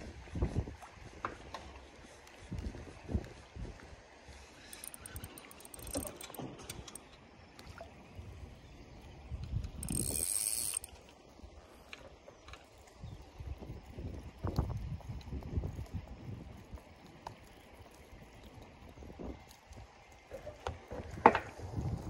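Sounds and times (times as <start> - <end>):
fishing reel whirring and clicking: 4.6 - 7.1, 9.4 - 11.5.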